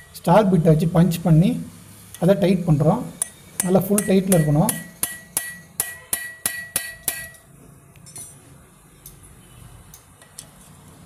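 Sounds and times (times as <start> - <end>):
hammer striking metal bit: 3.2 - 7.4.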